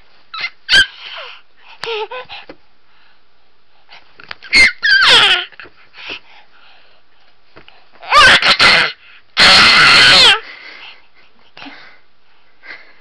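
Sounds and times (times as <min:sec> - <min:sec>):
baby screaming happily: 0:00.3 - 0:01.3, 0:04.4 - 0:05.6, 0:08.0 - 0:10.4.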